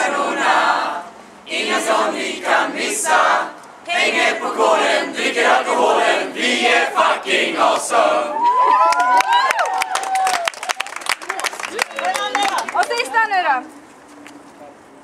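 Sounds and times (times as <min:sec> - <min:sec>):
group of voices cheering in unison: 0:07.8 - 0:11.0.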